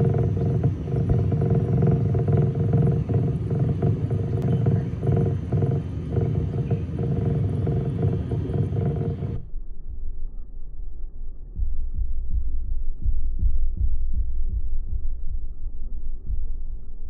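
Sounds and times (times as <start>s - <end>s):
water churning in tank: 0.0s - 9.4s.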